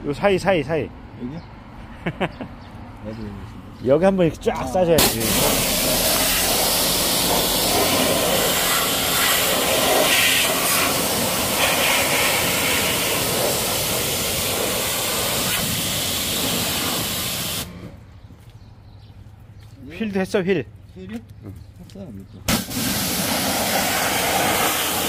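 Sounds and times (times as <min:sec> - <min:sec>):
pressure washer jet hissing: 0:05.0 - 0:17.8, 0:22.5 - 0:25.0.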